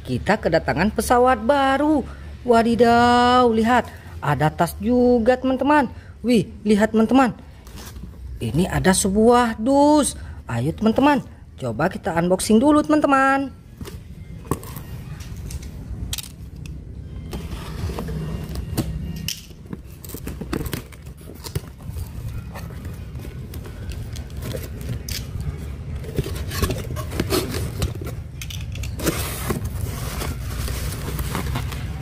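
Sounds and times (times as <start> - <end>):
cardboard flaps scraping: 29.0 - 32.0.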